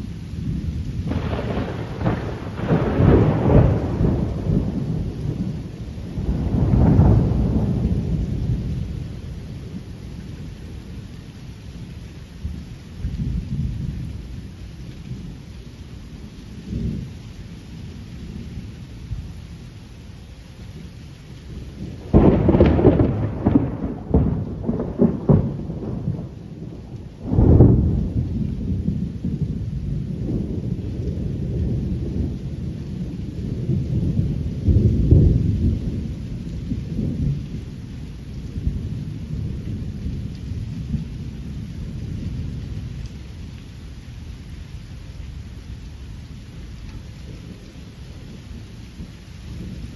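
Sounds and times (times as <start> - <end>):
thunder clap crackling: 0.0 - 10.8, 21.5 - 49.9
rolling thunder rumble: 0.0 - 19.6, 20.8 - 49.9.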